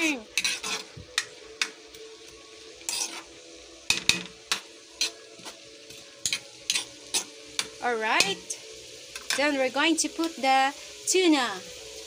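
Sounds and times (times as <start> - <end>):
spatula scraping a pan: 0.0 - 1.4, 2.8 - 8.5.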